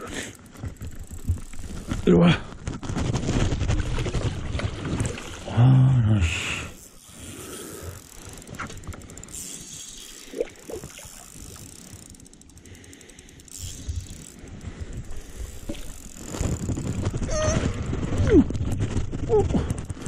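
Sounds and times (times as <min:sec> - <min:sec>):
fishing reel ticking while cranked: 0:00.0 - 0:02.1, 0:06.4 - 0:17.4.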